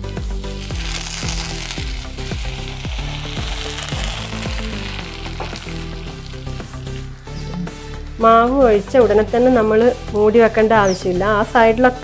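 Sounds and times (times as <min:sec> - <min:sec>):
batter sizzling in a hot pan: 0:00.0 - 0:07.1.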